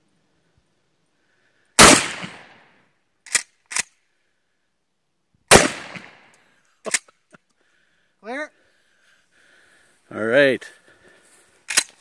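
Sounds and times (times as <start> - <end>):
shotgun blasts: 1.8 - 2.6, 5.5 - 6.2
shotgun pump clacks: 3.3 - 3.9, 11.7 - 12.0.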